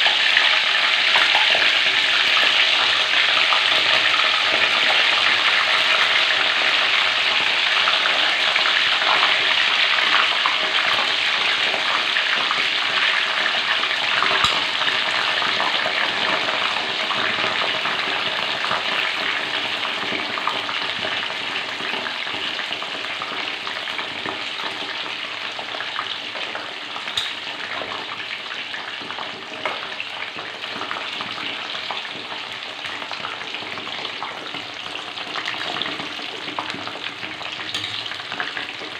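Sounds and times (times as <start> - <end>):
oil sizzling in a wok: 0.0 - 38.9.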